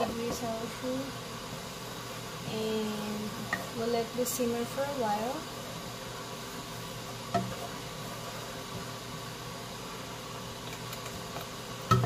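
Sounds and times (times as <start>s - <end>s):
steady hiss: 0.0s - 12.0s
wooden spoon striking a pot: 7.3s - 7.6s.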